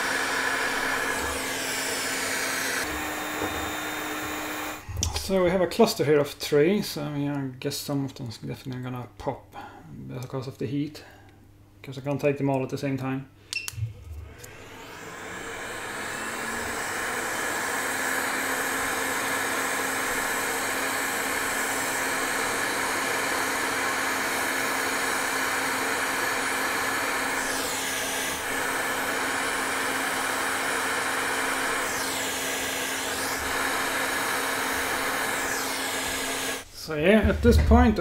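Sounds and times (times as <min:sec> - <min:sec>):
hot air station blowing hiss: 0:00.0 - 0:05.2, 0:14.2 - 0:36.7.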